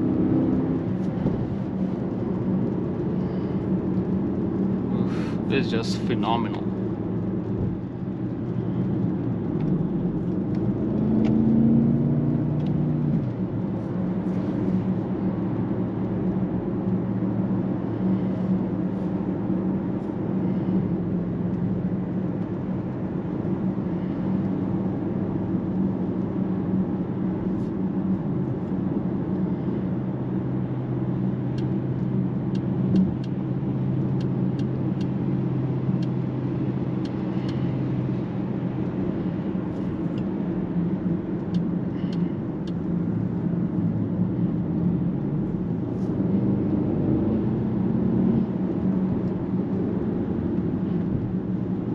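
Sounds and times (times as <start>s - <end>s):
road noise: 0.0s - 51.9s
car engine revving: 9.4s - 15.3s.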